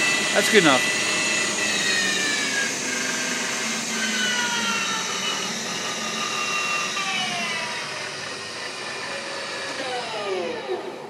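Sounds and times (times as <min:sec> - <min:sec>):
lathe spindle whining: 0:00.0 - 0:11.0.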